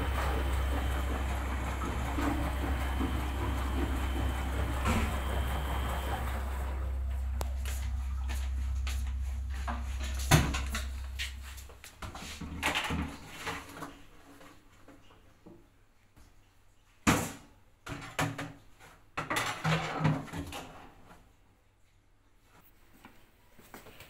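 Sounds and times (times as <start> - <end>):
low hum: 0.0 - 13.2
washing machine knocks and clatter: 0.0 - 13.8, 17.1 - 20.8.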